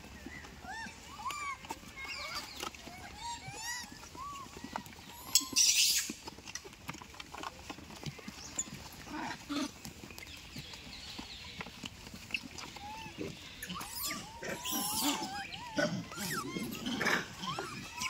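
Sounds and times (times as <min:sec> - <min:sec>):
monkeys squabbling: 0:00.2 - 0:10.4, 0:11.6 - 0:18.0
squeaky monkey calls: 0:00.6 - 0:06.2, 0:12.3 - 0:18.0.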